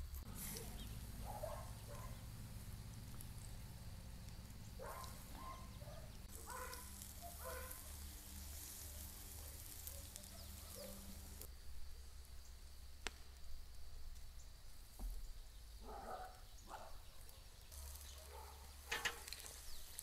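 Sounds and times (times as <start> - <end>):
faint high hiss: 0.0 - 20.0
bird chirps: 0.3 - 2.3, 4.2 - 8.1, 8.7 - 11.5.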